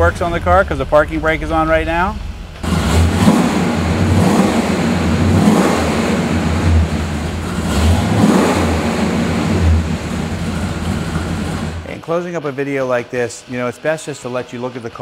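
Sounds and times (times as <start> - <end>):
car engine revving: 0.0 - 12.0.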